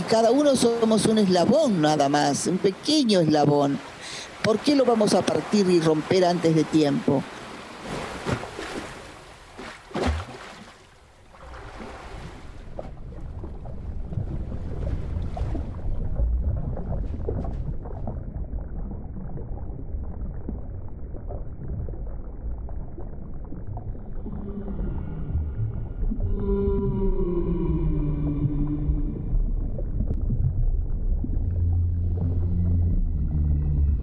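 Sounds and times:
sea surf: 0.0s - 9.3s
muffled underwater rumble: 12.3s - 34.0s
long gliding whale calls: 24.1s - 29.7s.

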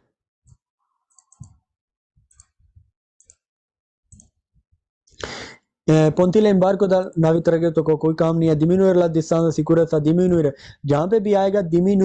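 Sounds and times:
computer mouse clicks: 0.5s - 1.6s, 2.3s - 2.6s, 3.2s - 3.5s, 4.1s - 4.4s.

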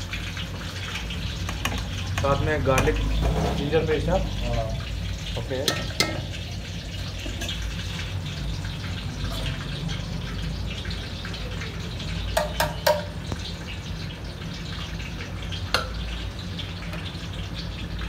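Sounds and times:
chicken sizzling in a pot: 0.0s - 18.0s
spoon clinking against metal pot: 5.6s - 6.4s, 12.4s - 13.3s.

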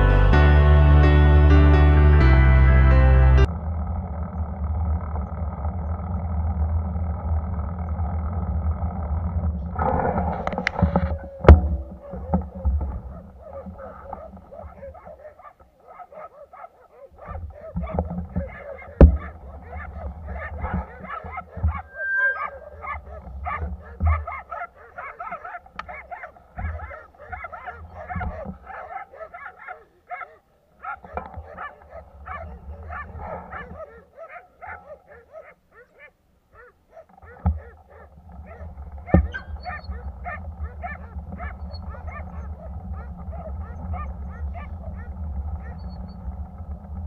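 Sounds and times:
thumps: 3.5s - 15.7s, 17.1s - 29.5s, 30.8s - 36.0s, 36.6s - 47.0s
dog barking: 11.9s - 46.0s
wind rumble on microphone: 17.1s - 24.8s, 37.1s - 47.0s.

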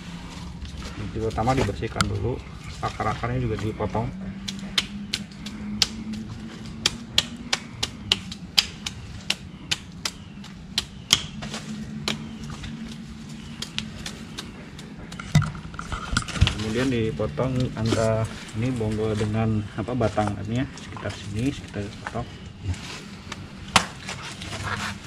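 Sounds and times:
machete chopping roots: 4.4s - 15.6s, 23.7s - 24.2s.

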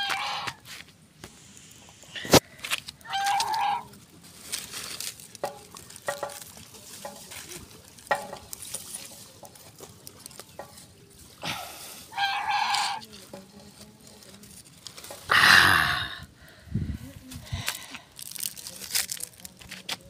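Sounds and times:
wood fire crackling: 1.2s - 12.1s, 13.0s - 15.4s, 17.5s - 20.0s
chickens clucking: 9.2s - 13.1s.

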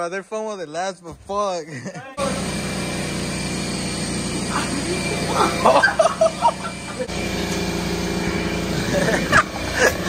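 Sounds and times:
young men yelling and laughing: 1.4s - 2.5s, 4.4s - 7.1s, 8.6s - 10.0s.

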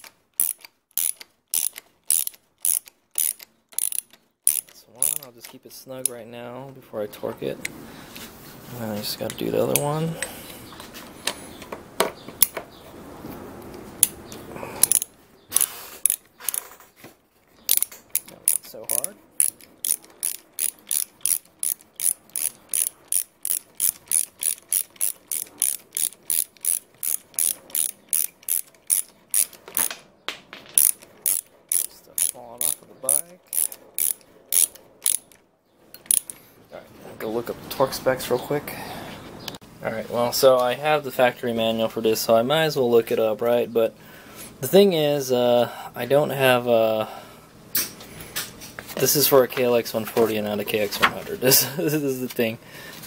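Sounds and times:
ratchet wrench clicking: 0.0s - 6.2s, 14.8s - 16.7s, 17.7s - 29.9s, 30.8s - 35.4s, 36.0s - 36.4s.

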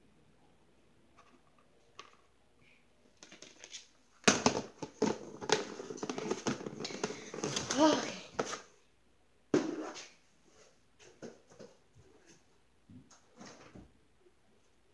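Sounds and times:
clattering and rustling handling: 3.2s - 8.6s.

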